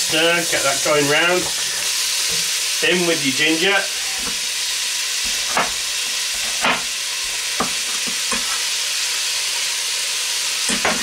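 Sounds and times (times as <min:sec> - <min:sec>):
meat and onion sizzling in pot: 0:00.0 - 0:11.0.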